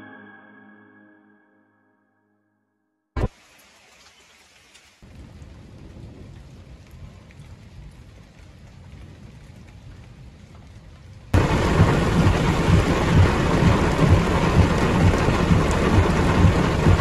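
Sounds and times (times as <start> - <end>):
heavy rain drumming on car roof: 5.0 - 17.0.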